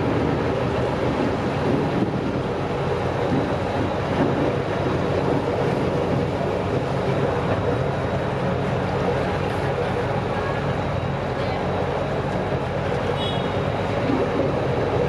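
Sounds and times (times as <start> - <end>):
boat engine drone: 0.0 - 15.0
water churning along hull: 0.0 - 15.0
wind on microphone: 0.0 - 15.0.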